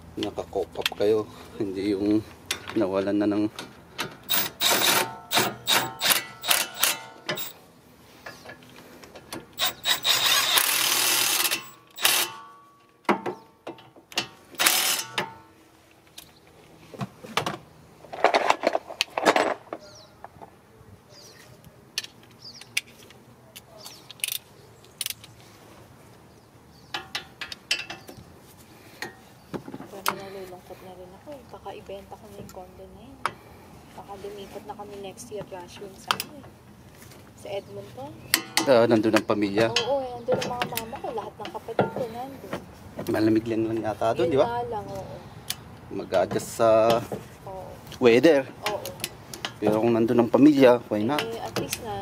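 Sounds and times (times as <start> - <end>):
ratchet tool clicking: 4.3 - 7.6, 9.6 - 12.4, 14.6 - 15.2.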